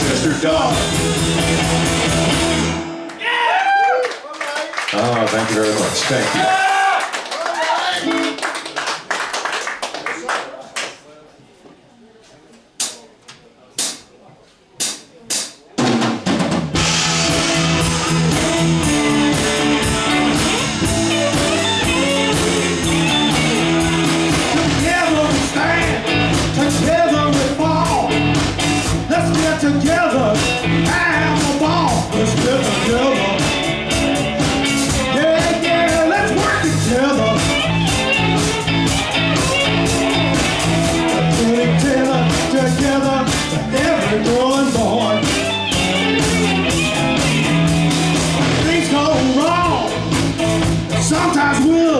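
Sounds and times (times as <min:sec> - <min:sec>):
guitar melody with bent notes: 0:00.0 - 0:03.1, 0:16.8 - 0:51.7
rock band playing: 0:00.0 - 0:03.2, 0:08.0 - 0:08.5, 0:14.8 - 0:51.9.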